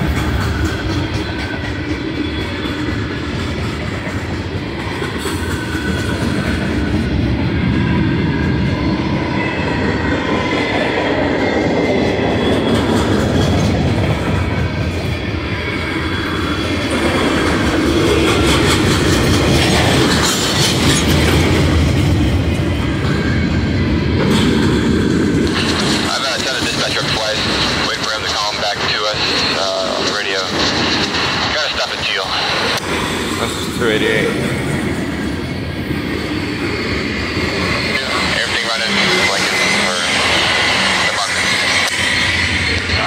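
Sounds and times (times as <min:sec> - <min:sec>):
train wheels clattering over rail joints: 0:00.0 - 0:07.0, 0:12.4 - 0:15.0, 0:16.9 - 0:23.2.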